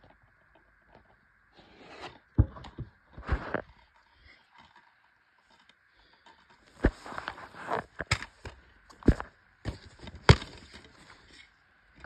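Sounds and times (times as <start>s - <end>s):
plastic case rustling and scraping: 1.6s - 11.6s.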